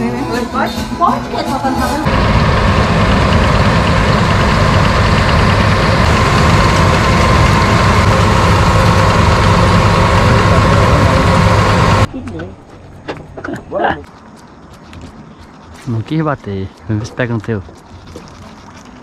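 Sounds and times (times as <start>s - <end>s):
combine harvester drone: 1.8s - 12.1s
steady high tone: 2.0s - 12.1s.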